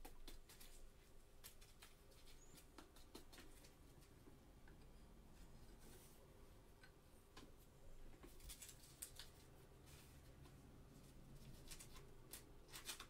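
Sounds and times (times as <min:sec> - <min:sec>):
faint clicks and taps: 0:01.4 - 0:05.0, 0:06.7 - 0:09.5.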